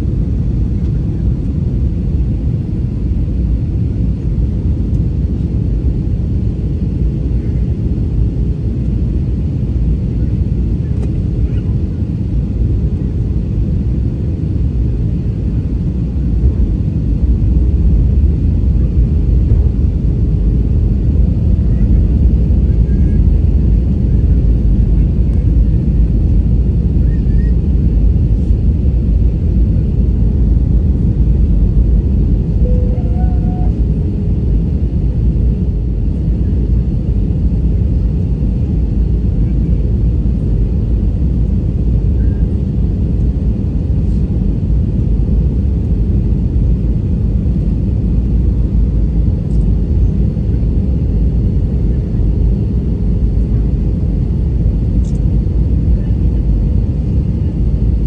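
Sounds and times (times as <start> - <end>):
jet engines rumbling: 0.0 - 58.0
rushing airflow: 16.2 - 22.3.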